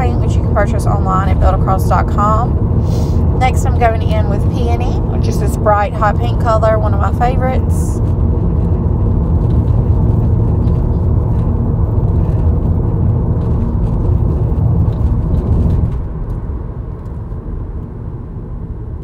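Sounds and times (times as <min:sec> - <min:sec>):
low rumble: 0:00.0 - 0:19.0.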